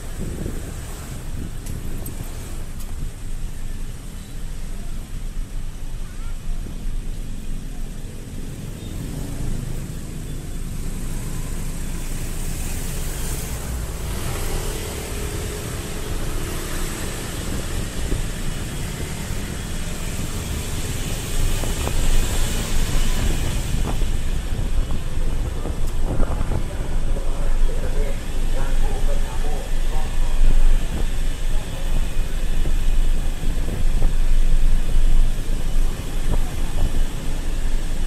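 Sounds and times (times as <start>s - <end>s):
wind rush: 0.0s - 3.5s, 12.3s - 38.0s
road noise: 0.0s - 38.0s
vehicle engine running: 0.0s - 38.0s.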